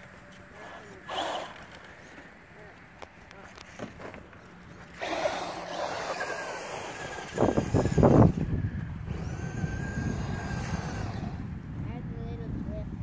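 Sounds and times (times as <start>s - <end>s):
electric motor whining: 0.6s - 2.0s, 5.0s - 11.6s.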